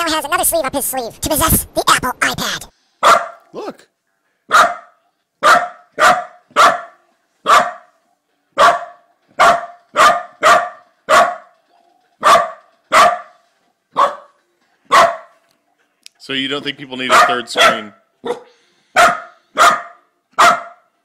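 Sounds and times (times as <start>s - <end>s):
dog barking: 3.0s - 3.4s, 4.5s - 8.0s, 8.6s - 11.6s, 12.2s - 15.4s, 17.1s - 21.0s.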